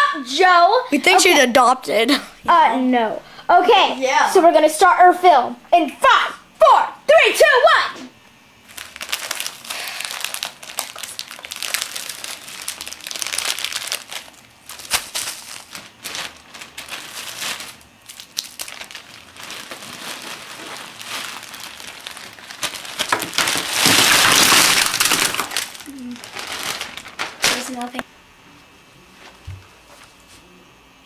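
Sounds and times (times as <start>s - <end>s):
plastic wrappers crinkling: 8.6s - 28.0s.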